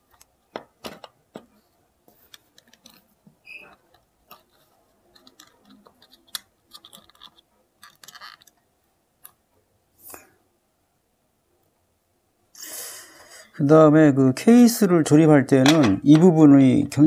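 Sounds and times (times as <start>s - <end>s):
small plastic parts clicking: 2.2s - 3.0s, 3.7s - 9.4s.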